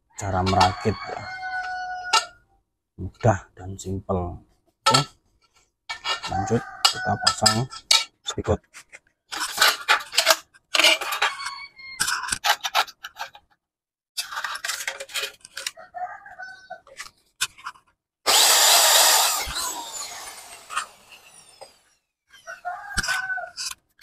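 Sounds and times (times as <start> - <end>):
metal parts clicking and scraping: 5.9 - 13.5, 14.2 - 15.8.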